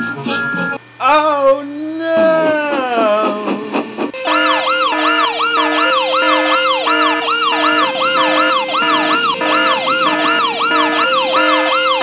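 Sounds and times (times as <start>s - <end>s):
two-note siren tone: 4.2s - 12.0s
yelping siren: 4.2s - 12.0s.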